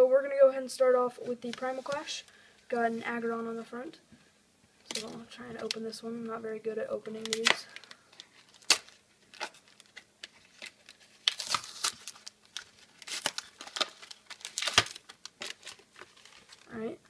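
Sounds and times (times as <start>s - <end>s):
foil wrapper crinkling and tearing: 7.2s - 16.9s.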